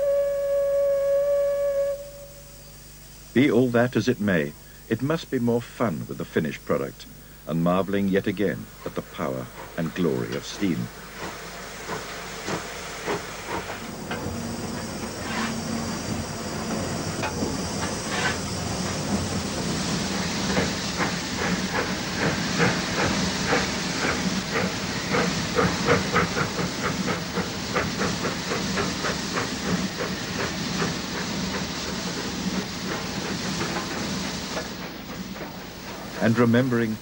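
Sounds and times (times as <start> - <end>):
steam hissing: 0.0 - 37.0
steam locomotive beats clattering: 8.5 - 37.0.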